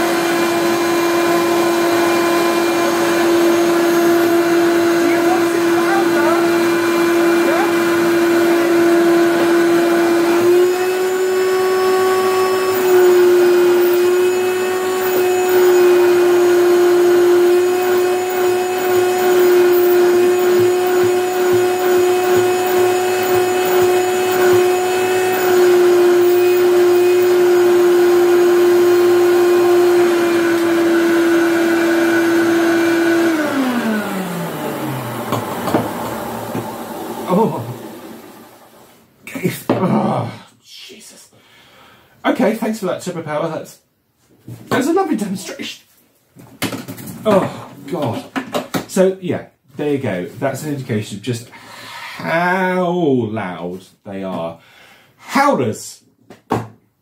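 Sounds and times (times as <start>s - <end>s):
vacuum cleaner howling: 0.0s - 39.0s
knock: 56.3s - 56.8s.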